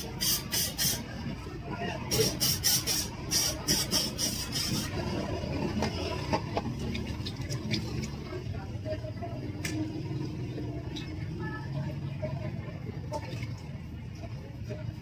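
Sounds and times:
aerosol spray squirts: 0:02.2 - 0:04.9.

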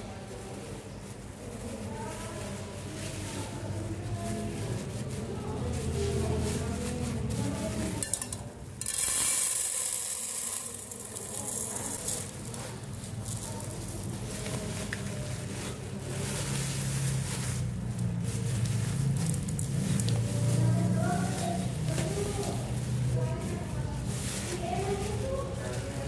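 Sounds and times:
plastic bag crackling: 0:00.0 - 0:26.0
rice pouring into metal pot: 0:08.0 - 0:14.0.

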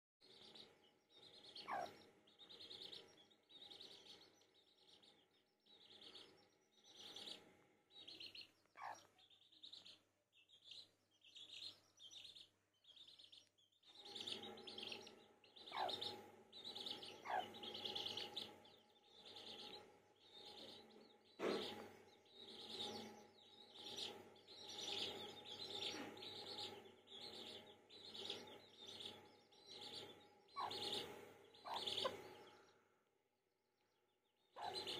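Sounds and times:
chicks peeping: 0:00.2 - 0:32.8, 0:33.8 - 0:34.9
knock: 0:21.4 - 0:21.9.

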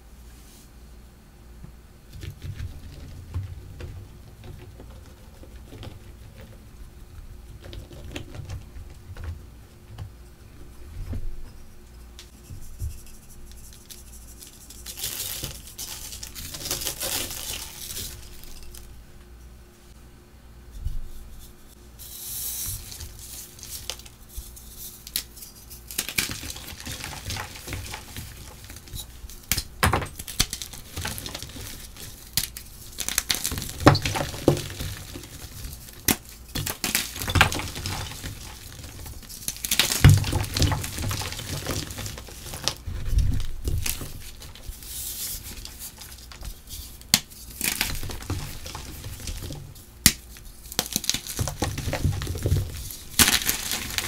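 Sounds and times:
chalk crunching and crackling: 0:11.5 - 0:18.8, 0:21.1 - 0:52.1
chalk pieces snapping: 0:25.0 - 0:42.8.

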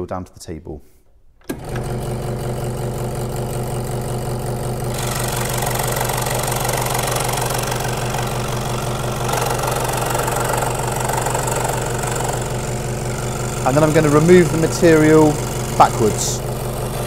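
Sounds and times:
scroll saw humming: 0:01.4 - 0:17.0
saw blade cutting plywood: 0:04.9 - 0:17.0.

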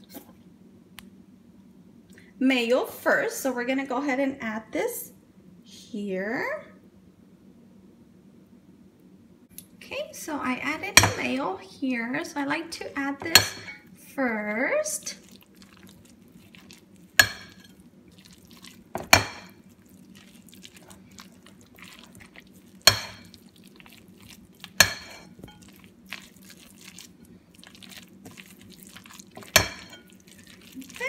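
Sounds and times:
scraping and stirring: 0:15.0 - 0:31.0
spatula knocking glass bowl: 0:17.2 - 0:17.7, 0:19.0 - 0:19.5, 0:22.9 - 0:23.3, 0:24.8 - 0:25.6, 0:29.4 - 0:30.1.

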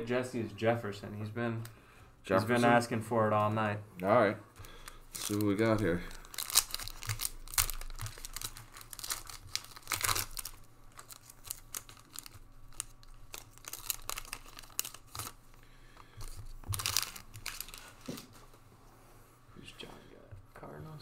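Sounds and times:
wrapper tearing and crinkling: 0:04.8 - 0:15.4, 0:16.7 - 0:18.4.

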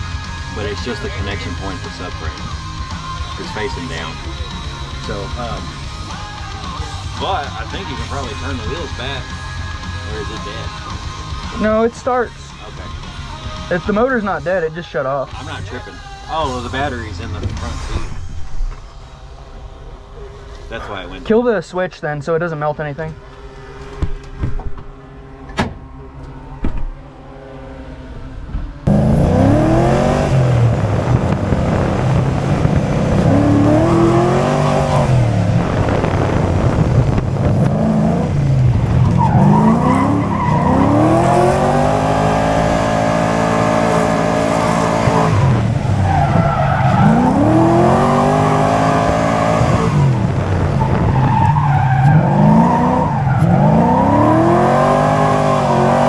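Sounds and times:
tyres skidding: 0:00.0 - 0:56.0
car engine revving hard: 0:28.8 - 0:56.0.

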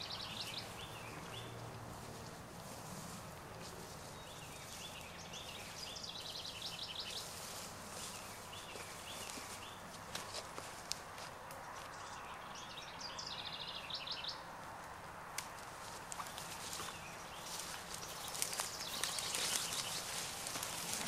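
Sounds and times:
bird chirping: 0:00.0 - 0:02.4, 0:03.6 - 0:07.4, 0:08.0 - 0:09.9, 0:11.6 - 0:14.5, 0:16.2 - 0:21.0
footsteps through tall grass: 0:00.1 - 0:12.0, 0:15.4 - 0:21.0.

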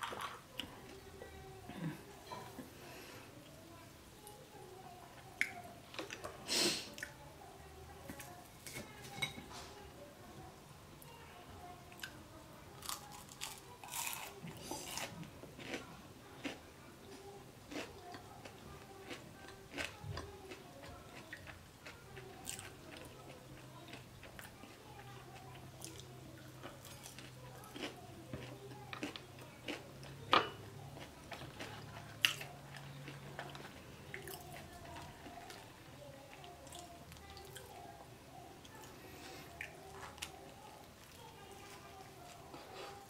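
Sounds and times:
person chewing food: 0:12.8 - 0:37.8.

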